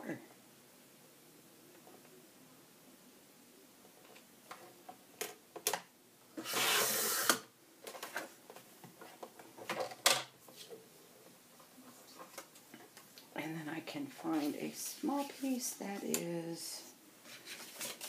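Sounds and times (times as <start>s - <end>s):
paper shuffling: 17.2s - 18.0s.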